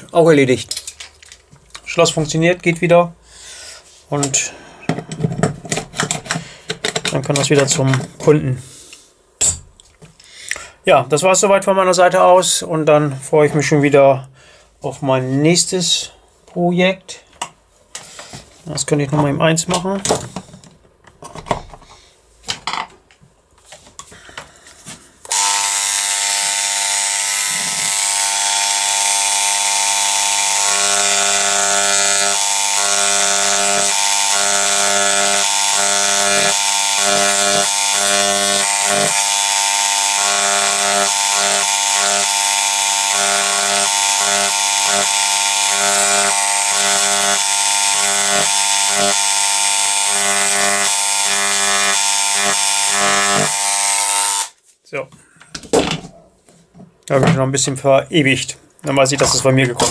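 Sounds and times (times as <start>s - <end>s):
engraving pen buzzing: 25.3s - 54.6s.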